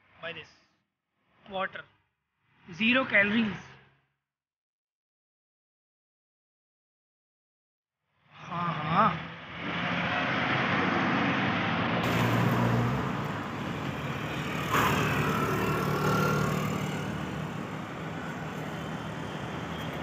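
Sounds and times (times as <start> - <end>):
vehicles passing: 8.8 - 20.0.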